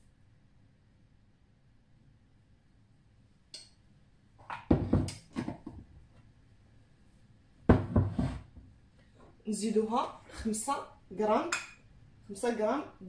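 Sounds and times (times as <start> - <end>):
container scraping on worktop: 7.8 - 8.5.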